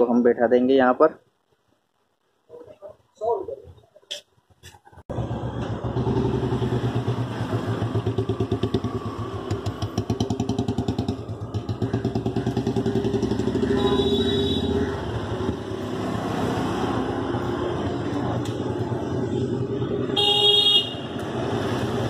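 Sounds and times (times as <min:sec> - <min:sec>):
motorcycle engine running: 0:05.1 - 0:16.0.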